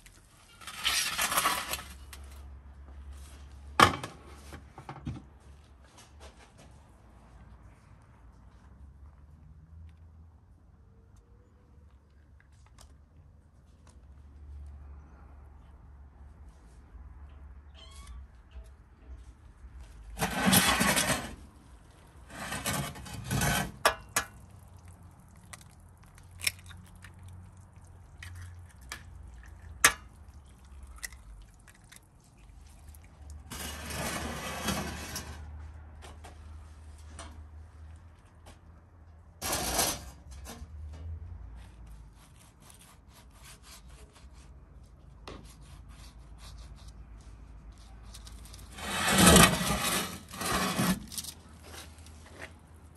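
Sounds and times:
scraping and rubbing of dishes: 20.2s - 21.4s, 22.2s - 24.2s, 33.4s - 35.5s, 48.7s - 51.2s.

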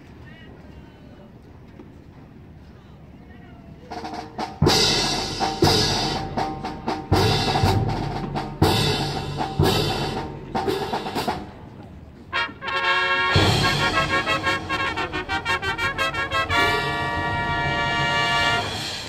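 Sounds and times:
drums: 3.8s - 19.0s
marching band playing: 3.9s - 19.0s
horns: 12.3s - 19.0s.

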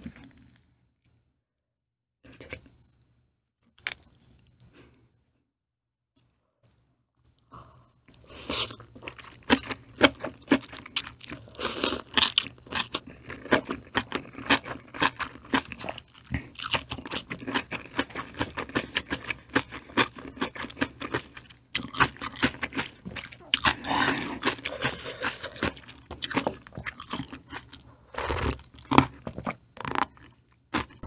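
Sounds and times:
person chewing crisp food: 3.8s - 4.9s, 8.1s - 31.0s.

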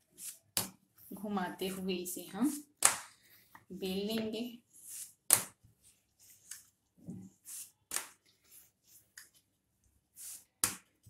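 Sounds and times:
rolling pin rubbing dough: 7.2s - 11.0s.

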